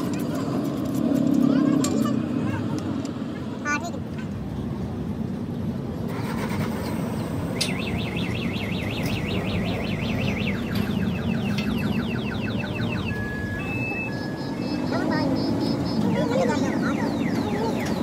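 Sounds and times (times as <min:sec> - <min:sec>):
engines and road traffic rumble: 0:00.0 - 0:18.0
warbling siren tone: 0:07.6 - 0:17.9
short steady beeps: 0:07.6 - 0:18.0.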